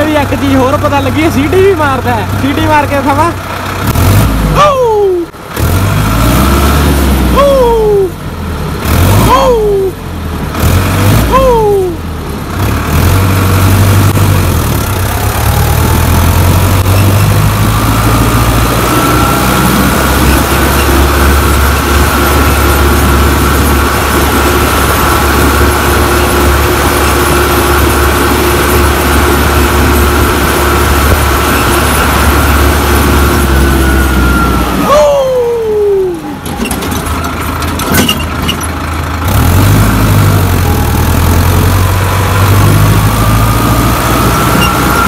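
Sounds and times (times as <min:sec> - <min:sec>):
tractor diesel engine drone: 0:00.0 - 0:45.0
turbo whistling: 0:44.4 - 0:45.0.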